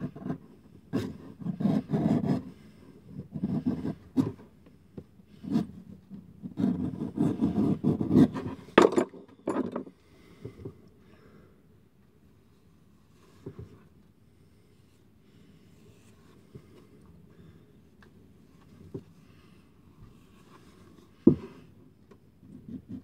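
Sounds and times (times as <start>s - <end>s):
knife scraping leather: 1.0s - 2.5s, 5.3s - 5.9s, 6.5s - 8.7s.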